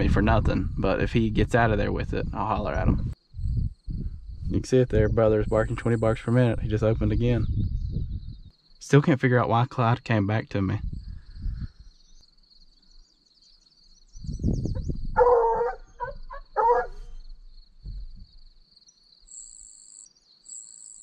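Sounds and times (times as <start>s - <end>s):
insects buzzing: 2.5s - 21.0s
dog barking: 15.2s - 17.2s.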